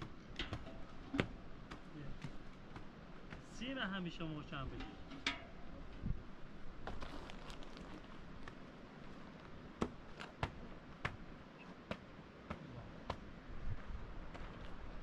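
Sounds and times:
sharp clicks and knocks: 0.0 - 2.8.

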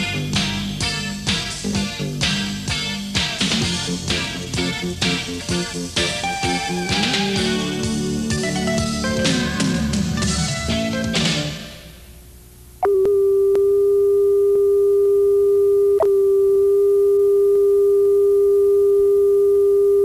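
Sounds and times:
closing music: 0.0 - 12.0
steady test tone: 12.8 - 20.0.

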